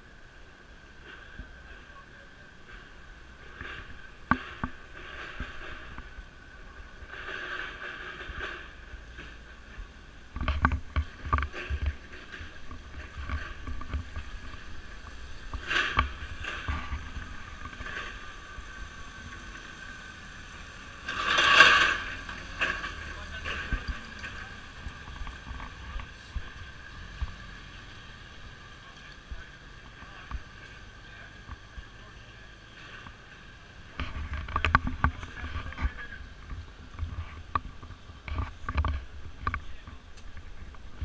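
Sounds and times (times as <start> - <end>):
low rumbling: 0.0 - 41.0
forklift truck driving past: 14.3 - 34.0.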